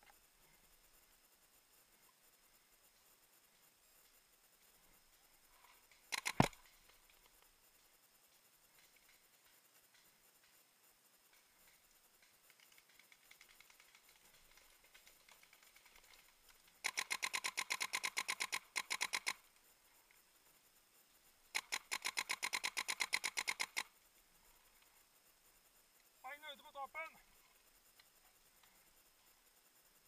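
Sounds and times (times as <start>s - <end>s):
faint scattered pops: 5.6s - 20.2s
paintball marker rapid bursts: 6.1s - 7.0s, 12.2s - 19.5s, 21.5s - 24.0s.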